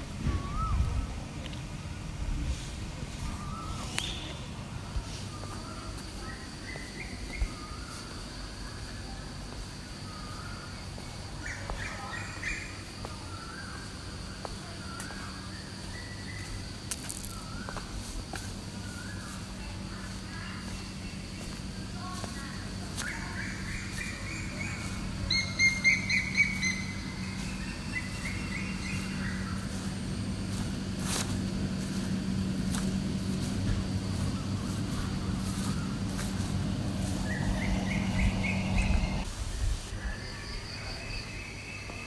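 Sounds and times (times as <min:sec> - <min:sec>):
steady low hum: 0:00.0 - 0:40.0
birds chirping: 0:09.8 - 0:39.3.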